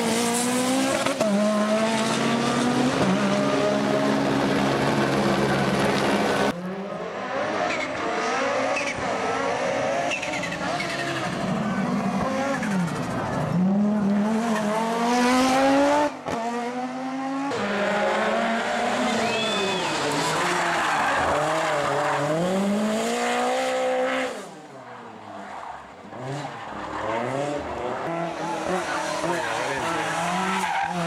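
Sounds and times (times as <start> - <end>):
rally car engines at full throttle: 0.0 - 31.0.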